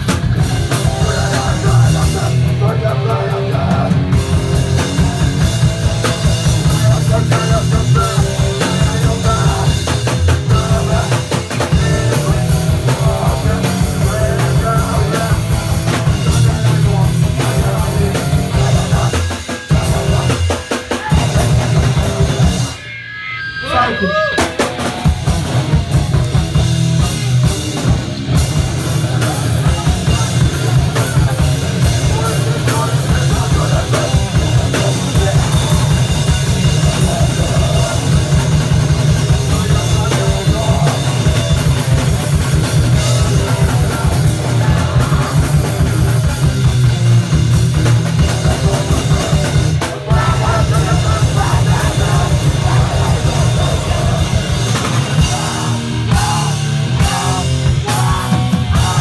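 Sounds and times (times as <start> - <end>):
fast drumming: 0.0 - 22.9, 23.7 - 59.0
rock band playing: 0.0 - 59.0.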